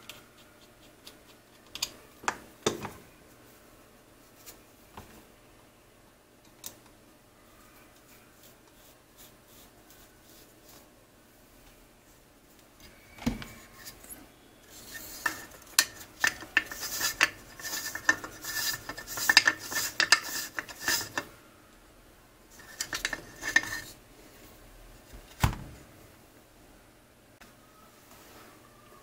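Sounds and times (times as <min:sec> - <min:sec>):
metal and plastic clinking and scraping: 0:14.9 - 0:21.3, 0:22.6 - 0:24.0.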